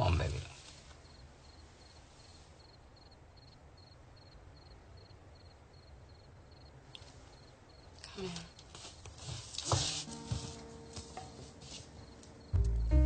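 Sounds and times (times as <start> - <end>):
cricket chirping: 1.0 - 8.6, 10.1 - 13.0
low hum: 12.4 - 13.0.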